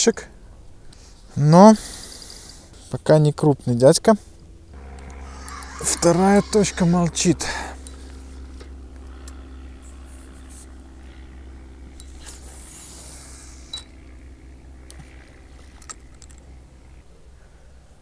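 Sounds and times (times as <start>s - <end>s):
steady low hum: 3.8s - 18.0s.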